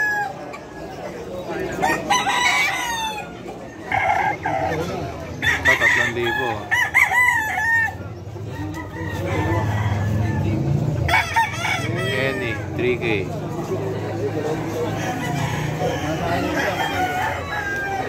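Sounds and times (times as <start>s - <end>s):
chickens clucking: 0.0s - 18.0s
roosters crowing: 0.0s - 18.0s.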